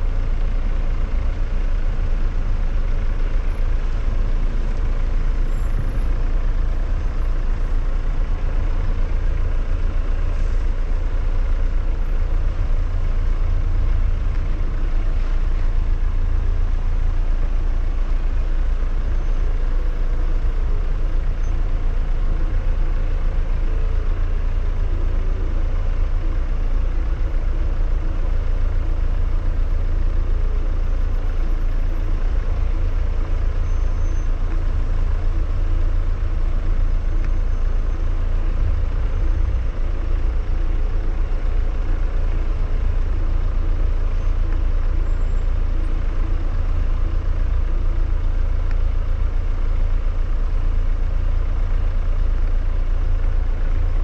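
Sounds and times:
engine and tyres rumbling: 0.0s - 54.0s.

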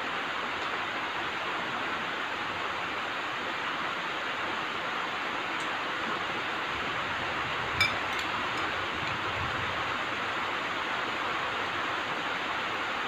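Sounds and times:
metal spoons clinking on bowls: 7.8s - 8.7s.

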